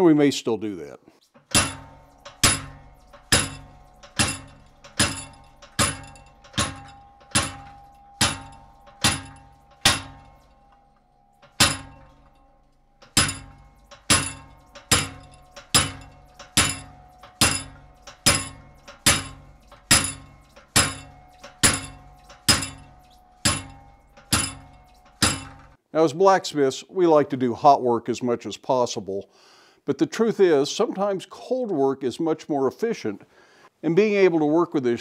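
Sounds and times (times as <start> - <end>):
hammer striking chisel through steel: 1.3 - 25.8.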